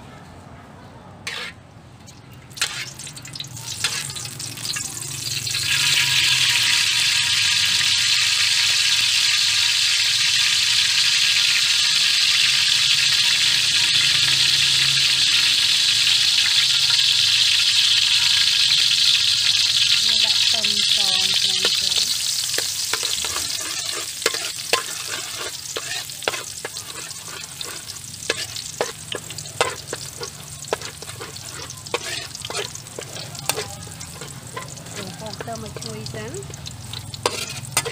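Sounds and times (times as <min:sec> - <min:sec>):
metal spatula scraping a wok: 0:01.2 - 0:04.8, 0:19.8 - 0:37.9
oil sizzling: 0:01.3 - 0:37.9.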